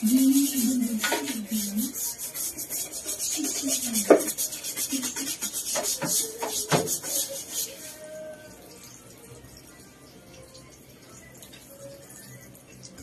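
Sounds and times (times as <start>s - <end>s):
rag scrubbing: 0.0s - 8.2s.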